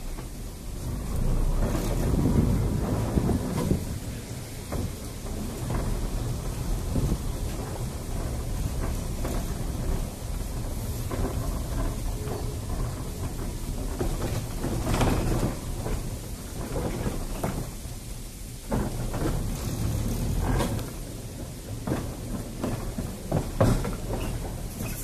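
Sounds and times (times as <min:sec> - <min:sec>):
wind buffeting microphone: 0:00.0 - 0:18.1
tram wheels rumbling on track: 0:00.0 - 0:25.0.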